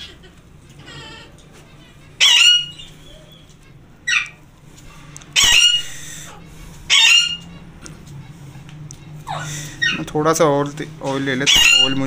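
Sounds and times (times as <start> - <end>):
parakeet screeching: 0.8 - 4.5, 5.3 - 7.7, 9.2 - 10.2, 11.3 - 12.0.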